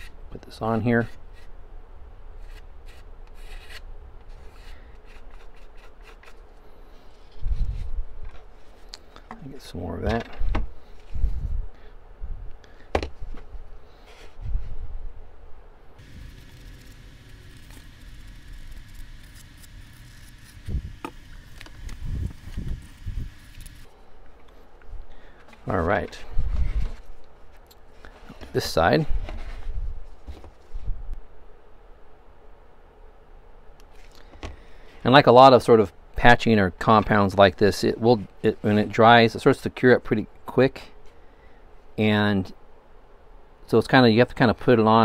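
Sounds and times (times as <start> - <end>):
stick scraping putty on wood: 2.4 - 6.4
dull knocks of handling: 12.9 - 13.5.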